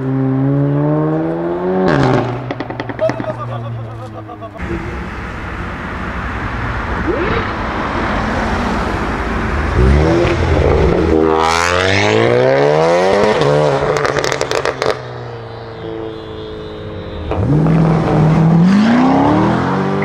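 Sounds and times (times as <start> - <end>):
car accelerating hard: 0.0 - 3.3, 6.8 - 15.0, 17.3 - 20.0.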